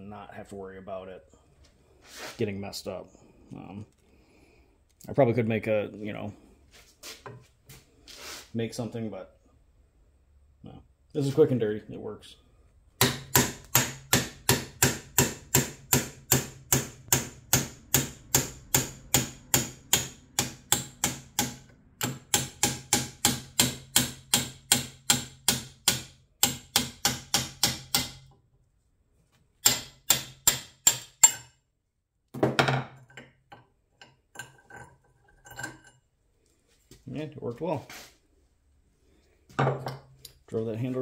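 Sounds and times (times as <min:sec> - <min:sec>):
hammer striking steel bolt: 0:13.0 - 0:28.3, 0:29.6 - 0:31.5.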